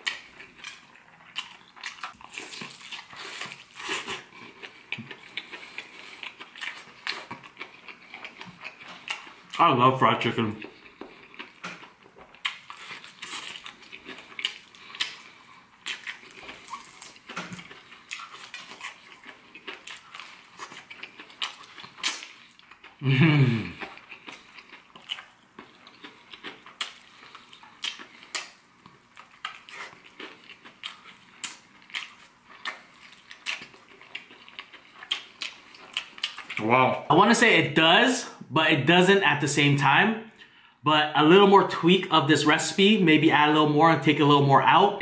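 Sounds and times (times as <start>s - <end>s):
crispy crackles of tearing meat: 0.0s - 9.6s, 10.6s - 23.0s, 23.8s - 36.7s
wet chewing and smacking: 0.0s - 9.6s, 10.6s - 23.0s, 23.8s - 36.7s
person humming: 23.0s - 23.8s.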